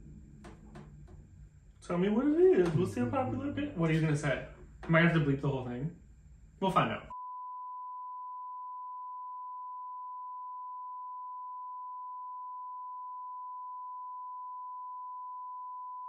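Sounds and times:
speech: 1.8s - 6.0s, 6.6s - 7.1s
censor bleep: 7.1s - 16.0s.

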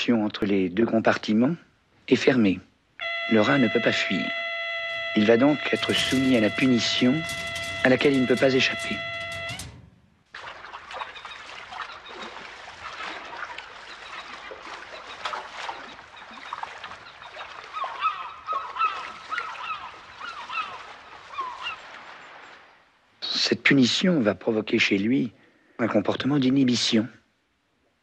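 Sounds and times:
water: 0.0s - 28.0s
wind: 0.0s - 28.0s
birds calling: 11.0s - 22.4s.

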